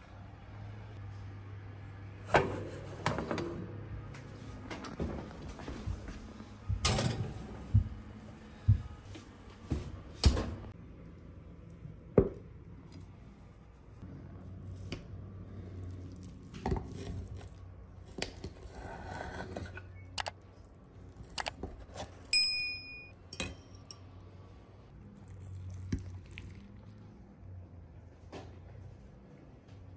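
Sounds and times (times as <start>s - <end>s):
tableware clink: 22.4s - 24.1s.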